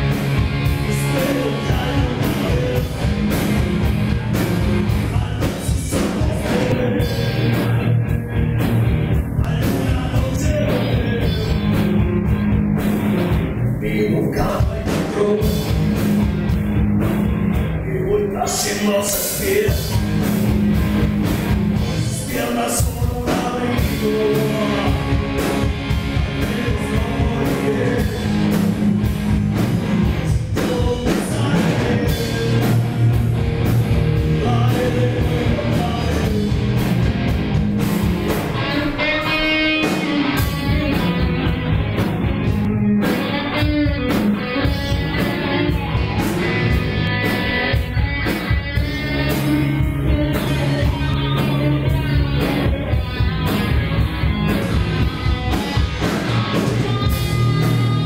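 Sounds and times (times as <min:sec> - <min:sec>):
bass guitar: 0:00.0 - 0:58.0
drums: 0:00.0 - 0:58.0
electric guitar: 0:00.0 - 0:58.0
man singing: 0:00.6 - 0:03.4, 0:04.3 - 0:08.7, 0:09.3 - 0:12.3, 0:13.7 - 0:15.9, 0:17.8 - 0:20.0, 0:21.8 - 0:28.6, 0:30.1 - 0:33.0, 0:34.2 - 0:36.8, 0:48.8 - 0:53.2.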